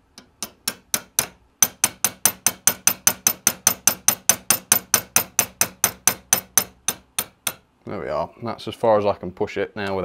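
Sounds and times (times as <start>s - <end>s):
hammer tapping metal punch: 0.0s - 7.7s.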